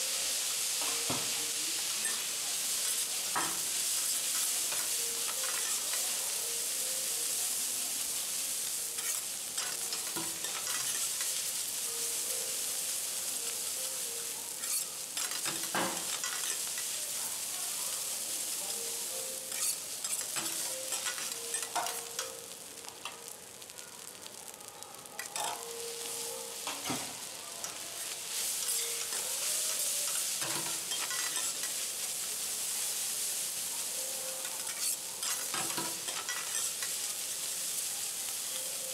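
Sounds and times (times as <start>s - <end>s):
rice sizzling on a griddle: 0.0s - 38.9s
metal spatulas scraping and clacking: 2.8s - 5.9s, 9.0s - 11.4s, 14.6s - 16.9s, 19.5s - 22.1s, 28.5s - 31.8s, 34.5s - 37.0s.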